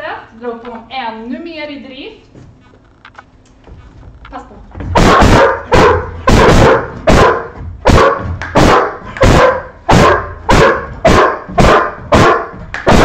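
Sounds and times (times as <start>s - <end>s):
dog barking: 5.0s - 13.0s.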